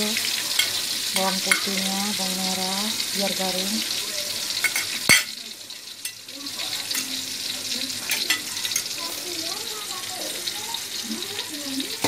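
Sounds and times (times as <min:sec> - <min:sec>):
garlic sizzling in hot oil: 0:00.0 - 0:12.0.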